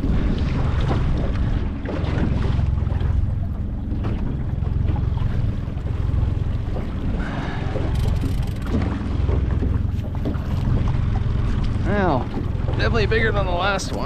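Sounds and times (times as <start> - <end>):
outboard motor running: 0.0 - 14.0
waves: 0.0 - 14.0
wind: 0.0 - 14.0.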